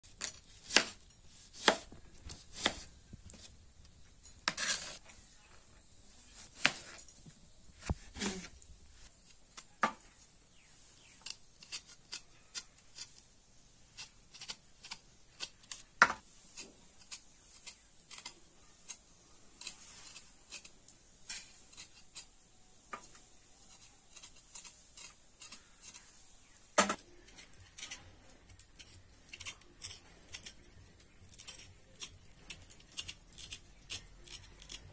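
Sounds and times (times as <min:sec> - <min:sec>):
knife scraping root skin: 0:00.1 - 0:03.6, 0:11.0 - 0:34.9.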